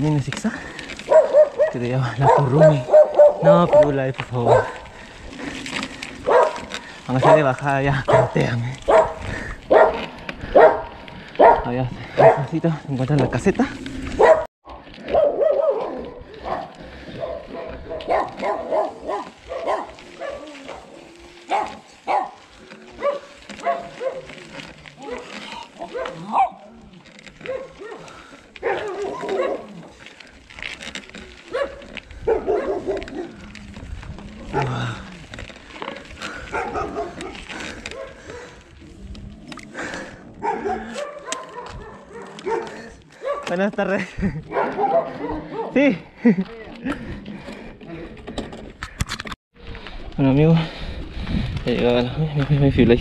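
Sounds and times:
dogs barking: 1.0s - 4.9s, 6.2s - 12.6s, 14.1s - 26.7s, 27.3s - 30.0s, 31.4s - 33.5s, 34.4s - 35.0s, 35.8s - 38.6s, 39.9s - 43.6s, 44.4s - 46.0s.

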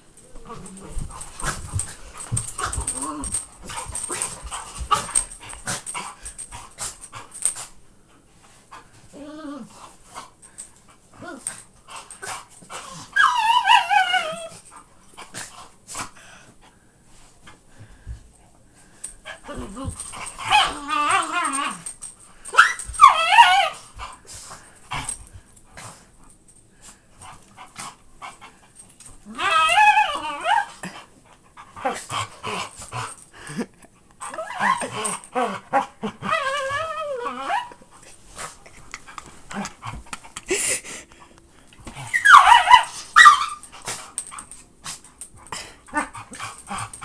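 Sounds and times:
dogs whining growls: 0.2s - 6.1s, 9.1s - 9.8s, 12.9s - 14.7s, 19.4s - 23.8s, 29.2s - 31.0s, 34.2s - 37.8s, 41.9s - 43.6s.

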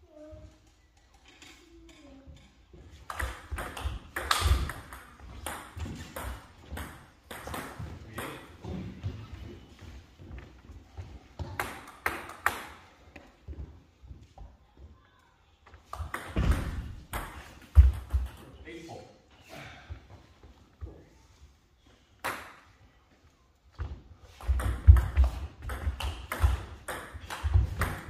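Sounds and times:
table tennis ball hits: 3.1s - 8.5s, 15.9s - 18.4s, 24.4s - 28.0s.

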